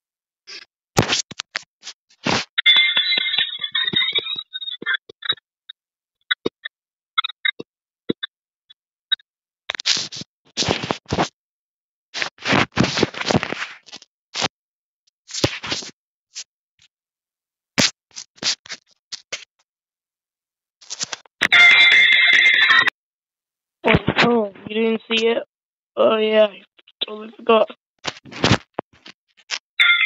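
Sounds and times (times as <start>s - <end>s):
rubbing on phone microphone: 0.5s - 5.4s, 9.7s - 11.4s, 12.1s - 14.5s, 15.2s - 16.5s, 17.8s - 19.6s, 20.8s - 22.0s, 28.0s - 29.6s.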